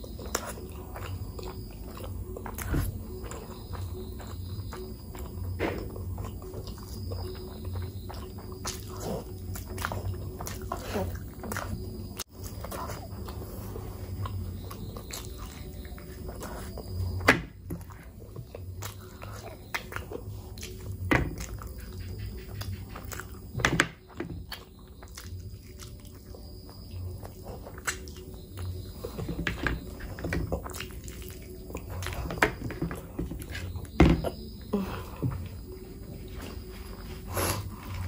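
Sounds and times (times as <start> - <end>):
chewing and wet mouth noises: 0.0 - 38.0.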